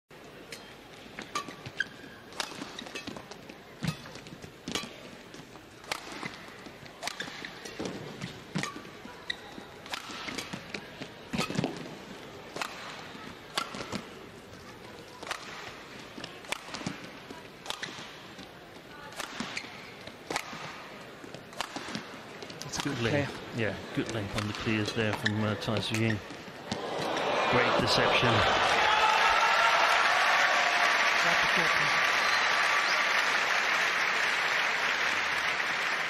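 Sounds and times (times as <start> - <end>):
shoes squeaking on court: 0.6 - 5.6, 6.2 - 12.1, 16.2 - 23.0, 24.1 - 27.1
racket striking shuttlecock: 9.8 - 10.7, 12.5 - 14.1, 19.1 - 20.9, 21.5 - 22.1
crowd hum: 26.4 - 29.9.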